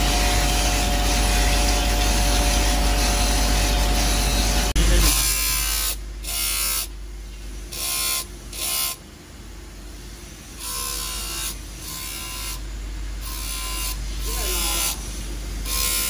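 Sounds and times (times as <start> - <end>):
grinding wheel running: 0.0 - 6.9, 10.5 - 16.0.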